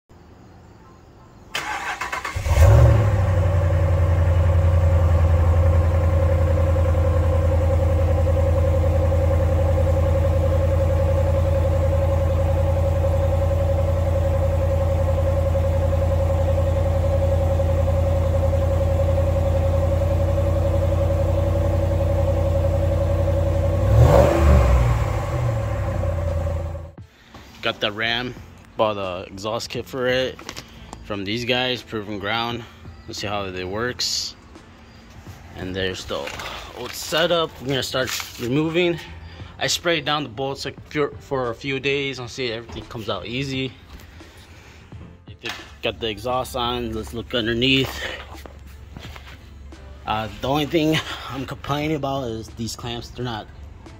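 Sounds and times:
engine cranking and starting: 1.5 - 5.0
engine revving: 1.6 - 27.0
engine idling: 1.6 - 27.1, 45.4 - 53.9.

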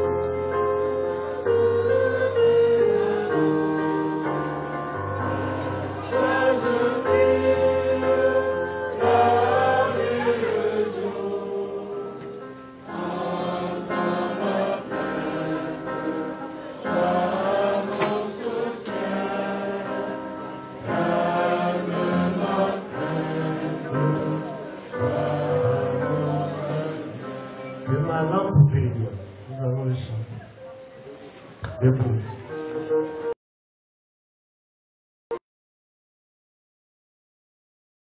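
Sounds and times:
steady musical accompaniment: 0.0 - 33.4
choir singing: 0.4 - 28.6.

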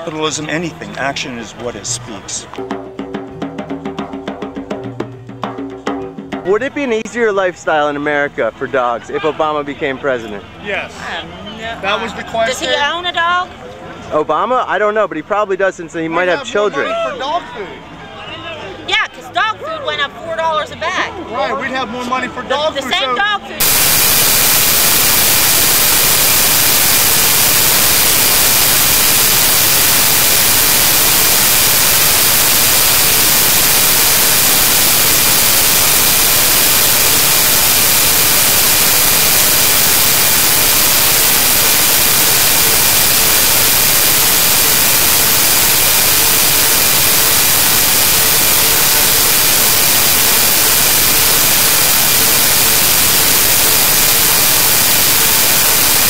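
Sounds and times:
loud static hiss: 23.6 - 56.0.

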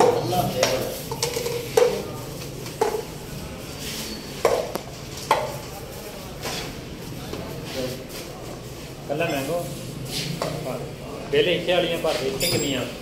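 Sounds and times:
cups knocking on countertop: 0.0 - 3.1, 4.4 - 5.6.

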